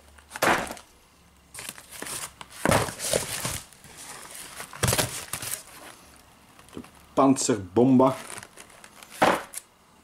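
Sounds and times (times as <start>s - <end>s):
plastic wrapping crinkling: 1.5s - 7.0s, 8.0s - 9.6s.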